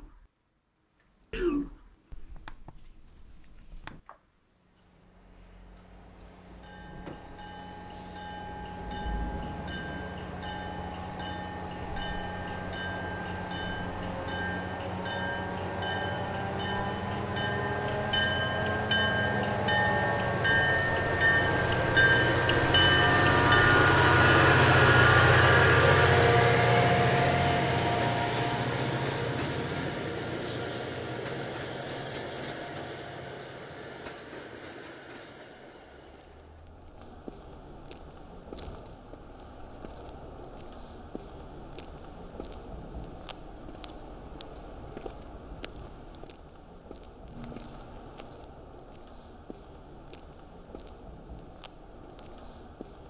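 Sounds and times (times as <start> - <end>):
steady high ringing tones: 6.2 - 33.4
low rumble: 35.8 - 52.8.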